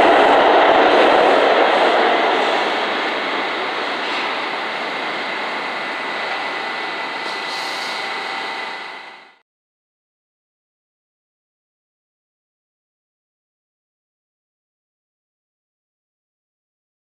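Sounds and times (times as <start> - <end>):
subway train running: 0.0 - 9.4.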